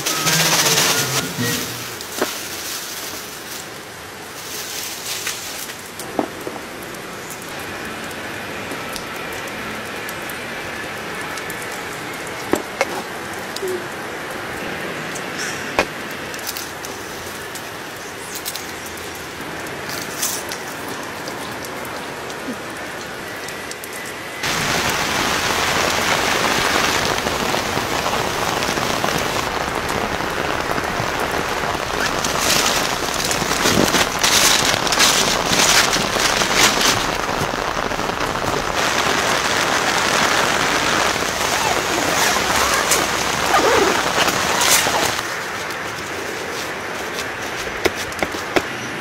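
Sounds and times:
steady rain falling: 0.0s - 49.0s.

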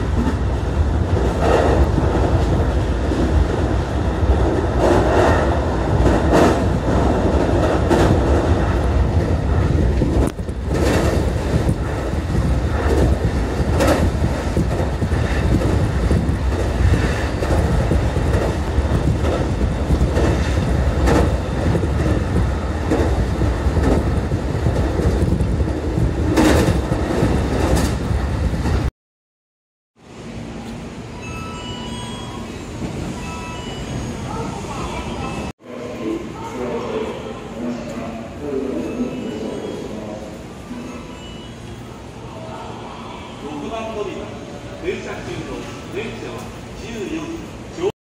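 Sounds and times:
train rumble inside carriage: 0.0s - 28.9s, 30.0s - 47.9s
wheels clacking on track: 4.3s - 28.9s.

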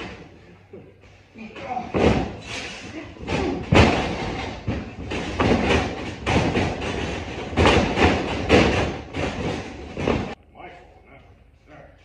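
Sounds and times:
heavy thuds on wrestling ring: 3.2s - 10.4s.

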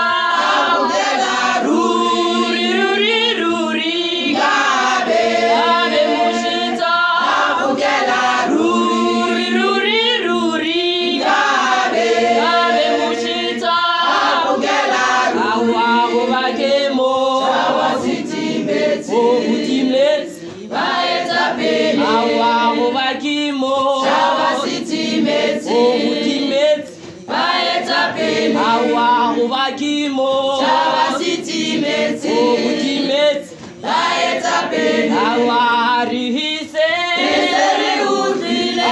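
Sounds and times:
female choir singing: 0.0s - 38.9s
singers breathing: 20.3s - 20.7s.

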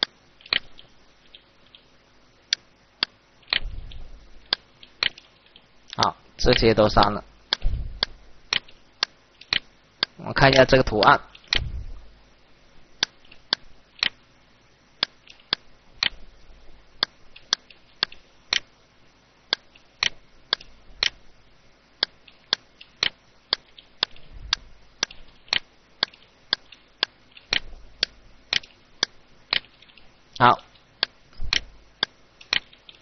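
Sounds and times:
computer mouse clicking: 0.0s - 1.9s, 2.5s - 6.7s, 7.5s - 10.2s, 11.0s - 11.8s, 13.0s - 14.2s, 15.0s - 16.2s, 17.0s - 18.7s, 19.5s - 21.2s, 22.0s - 30.1s, 30.7s - 33.0s.

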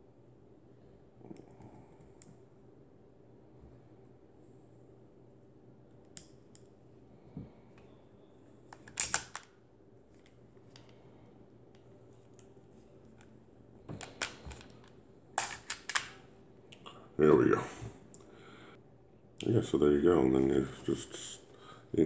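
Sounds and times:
pistol parts clicking and rattling: 8.7s - 9.5s, 14.0s - 16.2s.

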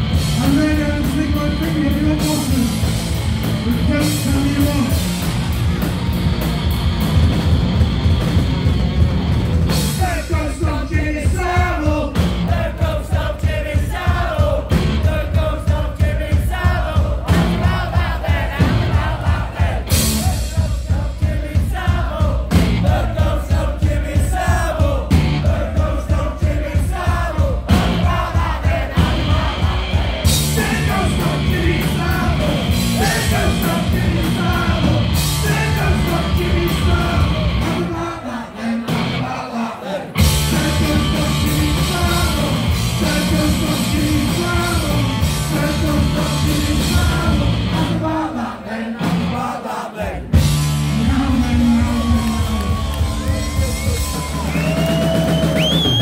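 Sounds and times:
punk band playing live: 0.0s - 56.0s
shouted vocals: 16.3s - 40.2s, 50.9s - 56.0s.

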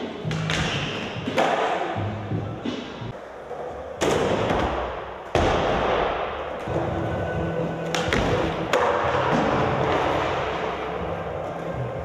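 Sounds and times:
skateboard rolling: 6.5s - 12.0s.

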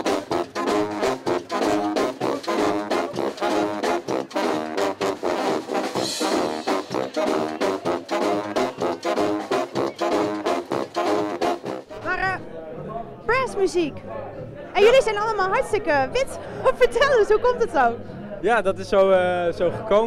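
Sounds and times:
brass band playing: 0.0s - 12.4s.

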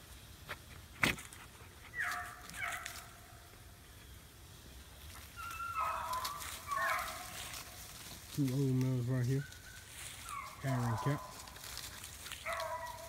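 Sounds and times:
dogs yelping and crying: 1.7s - 3.3s, 5.2s - 7.8s, 9.4s - 13.0s.

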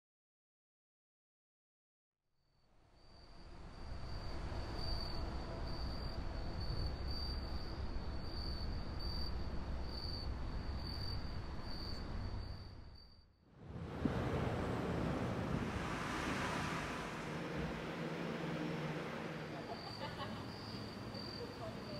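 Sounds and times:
insects chirring: 3.0s - 13.3s, 16.0s - 21.9s
low steady rumble: 13.6s - 21.9s.

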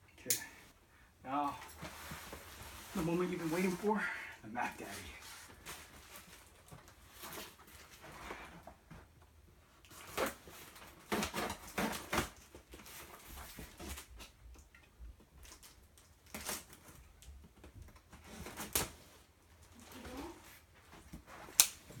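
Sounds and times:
packaging rustling and scraping: 1.5s - 4.1s, 4.7s - 9.1s, 9.8s - 14.4s, 15.4s - 22.0s.

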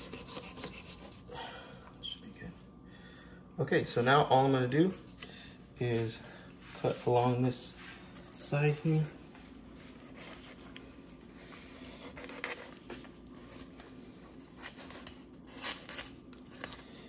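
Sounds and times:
knife scraping fish bones: 0.0s - 1.2s, 9.8s - 16.1s.

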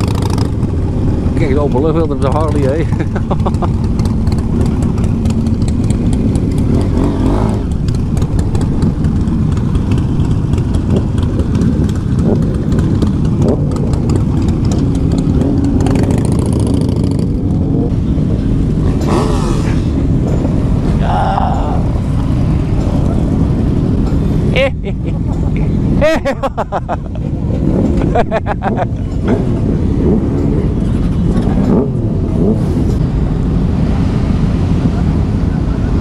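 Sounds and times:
motorcycle engine running: 0.0s - 21.0s
road and wind noise: 0.0s - 36.0s.

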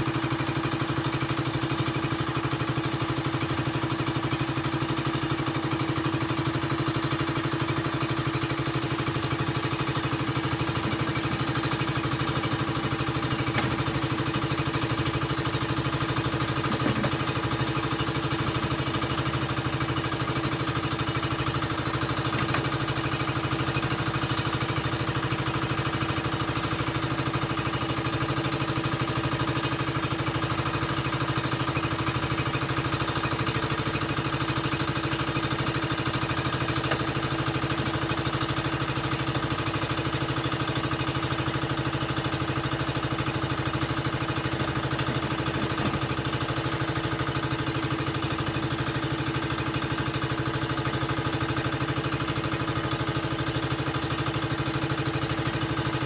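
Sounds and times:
engine running steadily: 0.0s - 56.0s.

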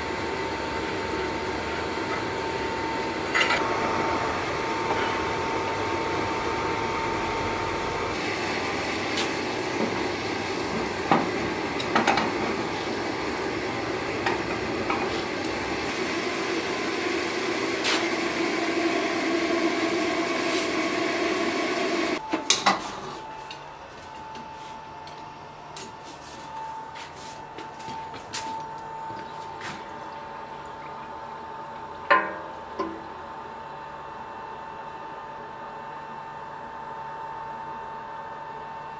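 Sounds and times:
gas forge burning: 0.0s - 23.5s.

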